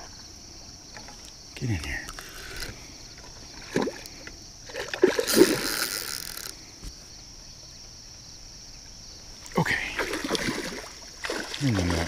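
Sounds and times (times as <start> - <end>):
fish splashing in water: 3.5 - 6.5, 9.8 - 12.0.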